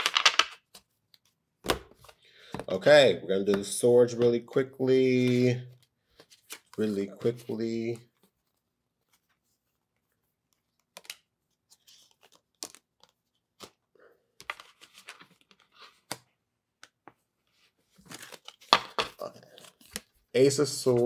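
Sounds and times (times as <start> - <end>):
cards snapping and rustling: 0.0 - 2.6, 10.8 - 11.3, 11.9 - 13.8, 18.0 - 20.1.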